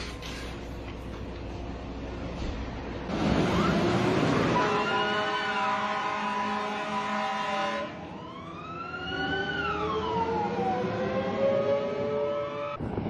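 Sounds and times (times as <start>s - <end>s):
fire truck siren wailing: 3.1s - 13.0s.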